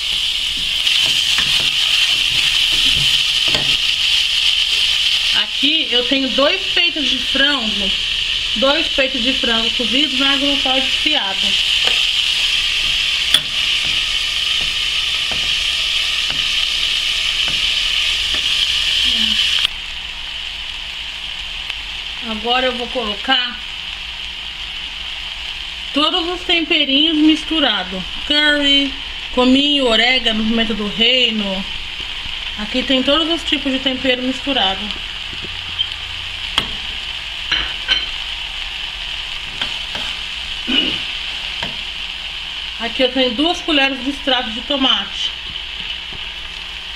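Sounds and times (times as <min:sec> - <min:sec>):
spoon stirring: 0:00.0 - 0:03.8
vegetables sizzling in oil: 0:00.0 - 0:46.9.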